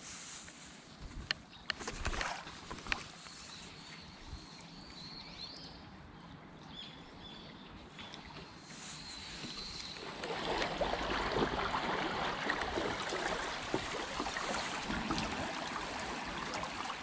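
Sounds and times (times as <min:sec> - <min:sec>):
river water rushing and babbling: 0:07.8 - 0:17.0
small water splashes: 0:07.8 - 0:17.0.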